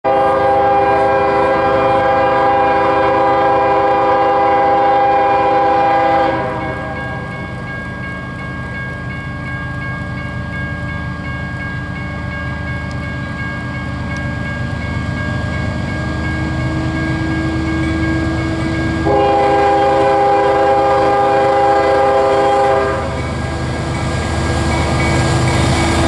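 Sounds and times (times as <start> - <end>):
train air horn blast: 0.0 - 7.3, 19.0 - 23.2
diesel locomotive rumble: 0.0 - 26.0.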